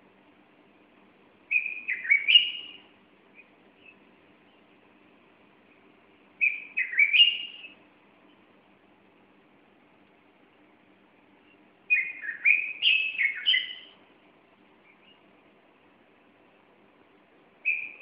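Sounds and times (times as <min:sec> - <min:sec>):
bird whistling rising phrases: 0:01.5 - 0:02.8, 0:06.4 - 0:07.8, 0:11.9 - 0:14.0, 0:17.6 - 0:18.0.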